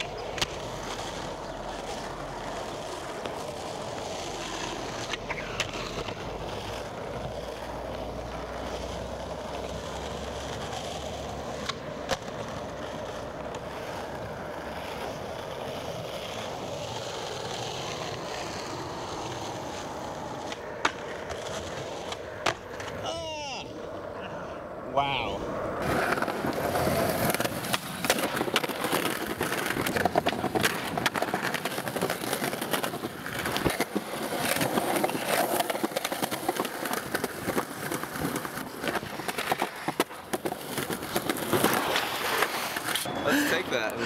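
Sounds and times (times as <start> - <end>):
skateboard wheels rolling on asphalt: 0.0 - 44.0
skateboard clacks landing tricks: 22.0 - 23.0.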